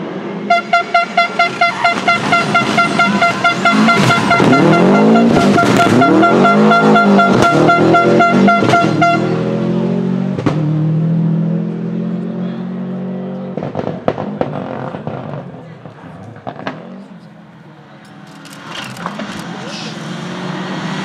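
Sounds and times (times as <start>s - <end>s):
rally car engine revving: 0.0s - 17.3s, 18.5s - 21.0s
horn blasts: 0.5s - 9.6s
car bangs: 2.0s - 6.3s.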